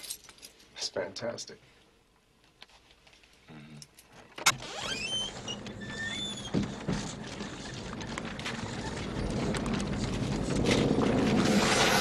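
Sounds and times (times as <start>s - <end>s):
whirring and clatter: 4.5s - 12.0s.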